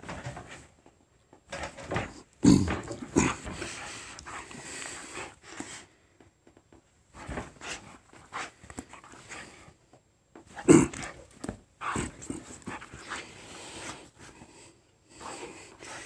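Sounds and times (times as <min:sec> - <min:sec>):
dog panting: 0:03.2 - 0:05.9, 0:07.2 - 0:09.8, 0:10.6 - 0:16.0
bedding rustling: 0:06.9 - 0:16.0.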